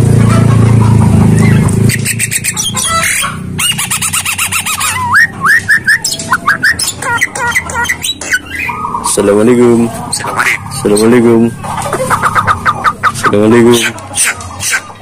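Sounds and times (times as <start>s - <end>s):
myna bird singing: 0.3s - 15.0s.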